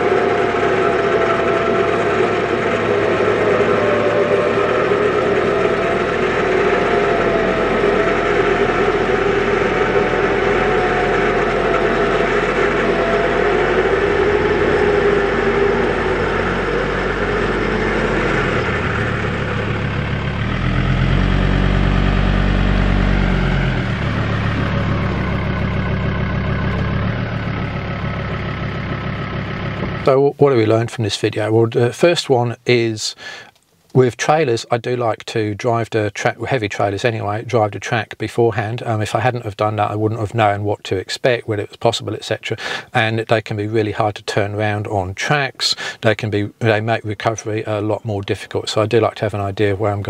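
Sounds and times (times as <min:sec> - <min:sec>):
truck engine running under load: 0:00.0 - 0:30.8, 0:38.6 - 0:43.0, 0:45.7 - 0:50.0.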